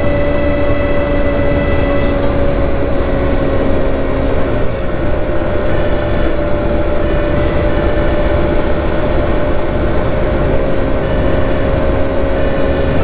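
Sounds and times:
moped engine running: 0:00.0 - 0:13.0.

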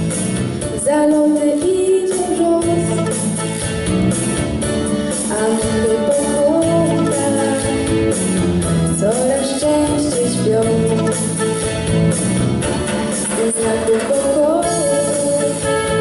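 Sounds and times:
instrumental accompaniment: 0:00.0 - 0:16.0
girl singing: 0:00.8 - 0:03.2, 0:05.3 - 0:08.0, 0:09.0 - 0:11.1, 0:13.3 - 0:16.0.

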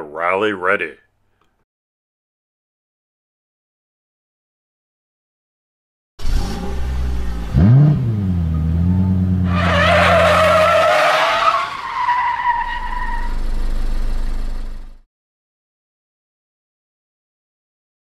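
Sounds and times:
car engine revving: 0:06.2 - 0:15.0
tyres screeching: 0:08.7 - 0:13.5.

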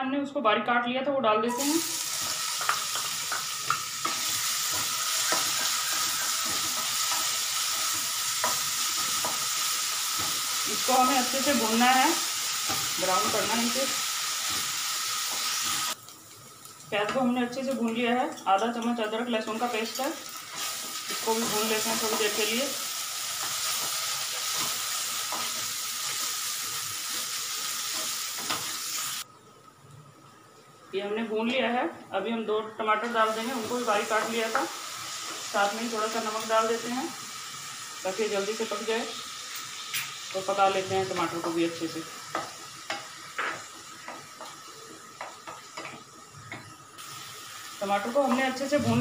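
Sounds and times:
onion sizzling in hot oil: 0:01.5 - 0:29.3, 0:33.0 - 0:49.0.

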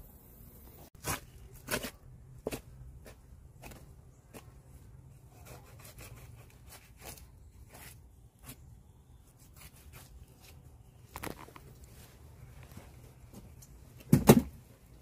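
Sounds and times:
knife slicing and tearing meat: 0:09.4 - 0:10.6.

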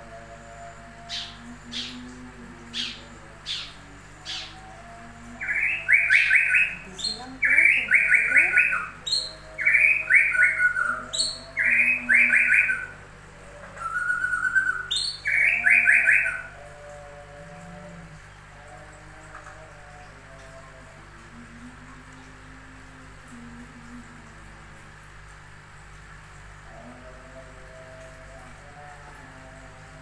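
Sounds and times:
songbird singing: 0:00.9 - 0:13.0, 0:13.7 - 0:16.9.

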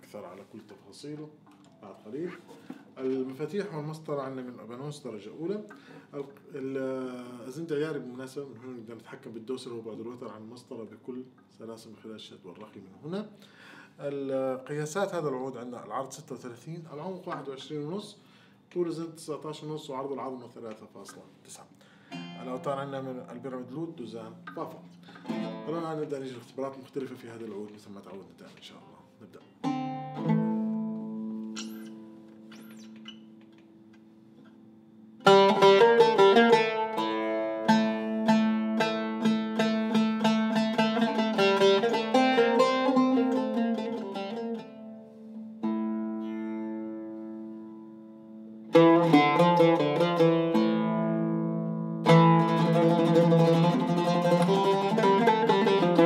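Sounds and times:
oud plucked: 0:22.1 - 0:28.7, 0:29.3 - 0:56.0.

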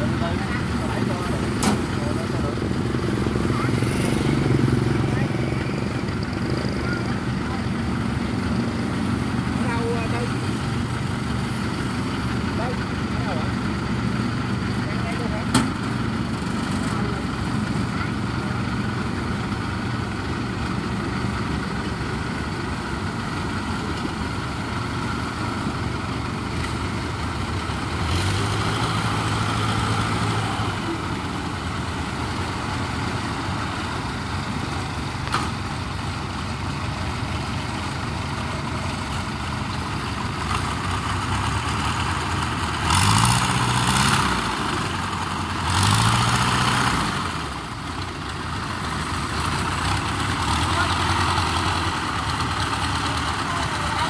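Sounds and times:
engine idling and revving: 0:00.0 - 0:54.0.

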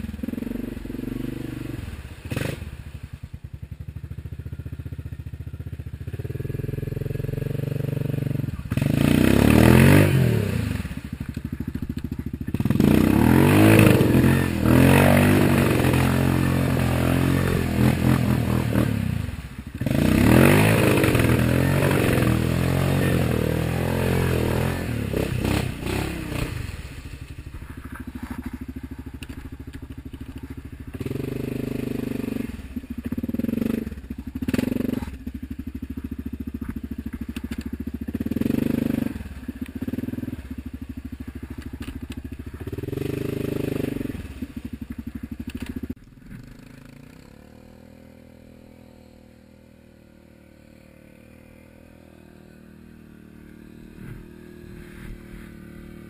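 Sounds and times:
quad bike engine revving: 0:00.0 - 0:56.0.

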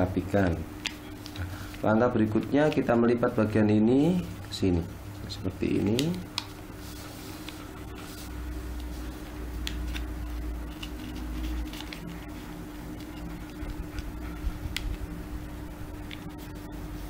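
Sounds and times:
low background hum: 0:00.0 - 0:17.0
paper crinkling and tapping: 0:00.8 - 0:01.8, 0:05.7 - 0:15.1.

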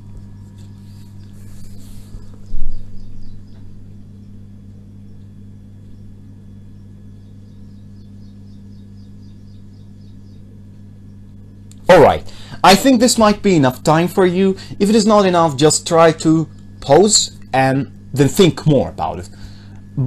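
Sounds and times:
steady low hum: 0:00.0 - 0:20.0.

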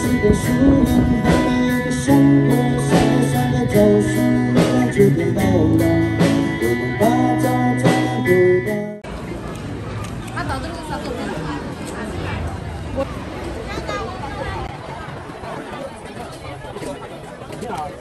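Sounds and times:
acoustic guitars: 0:00.0 - 0:09.0
person singing: 0:00.0 - 0:09.0
steady beat: 0:00.0 - 0:09.0.

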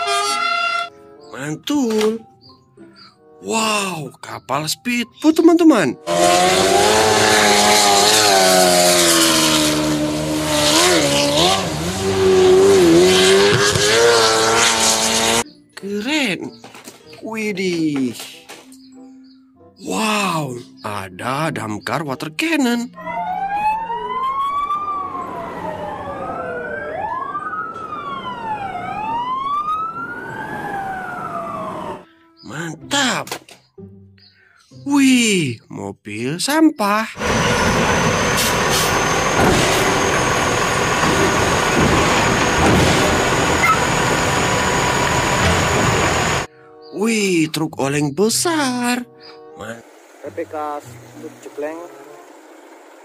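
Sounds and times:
boat engine at high revs: 0:06.0 - 0:15.4, 0:37.2 - 0:46.5
fire truck sirens wailing: 0:23.0 - 0:32.1, 0:37.2 - 0:46.5.

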